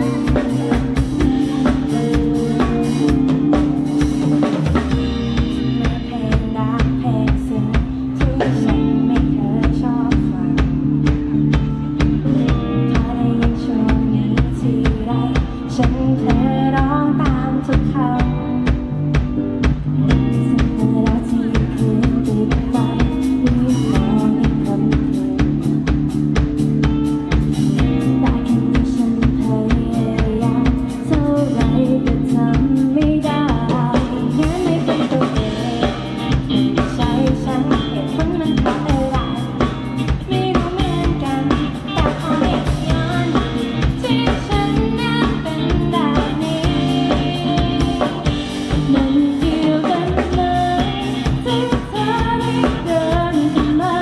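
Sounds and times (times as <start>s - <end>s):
women singing: 0.0s - 3.2s, 5.5s - 10.8s, 12.8s - 18.5s, 20.6s - 25.8s, 27.8s - 39.6s, 40.2s - 54.0s
drum kit beat: 0.0s - 54.0s
live pop-rock band playing: 0.0s - 54.0s.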